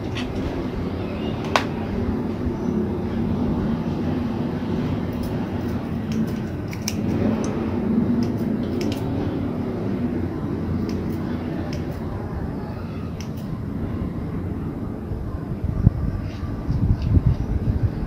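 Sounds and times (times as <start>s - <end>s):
low rumble with faint hum: 0.0s - 18.0s
scissors snipping stems: 6.1s - 7.6s, 8.2s - 9.1s.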